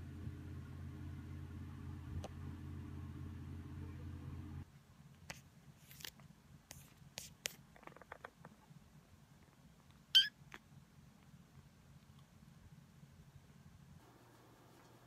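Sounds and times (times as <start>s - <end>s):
kitten meowing: 10.2s - 10.4s.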